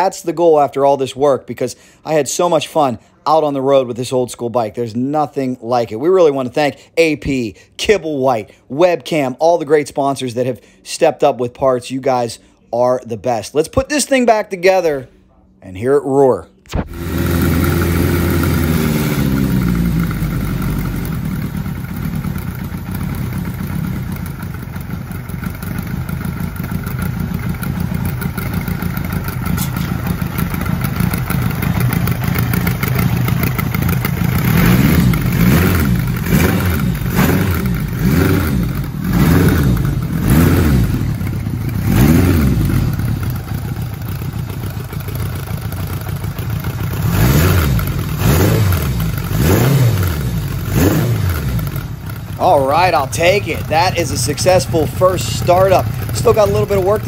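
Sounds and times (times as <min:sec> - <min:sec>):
motorcycle engine running and revving: 0:16.7 - 0:57.0.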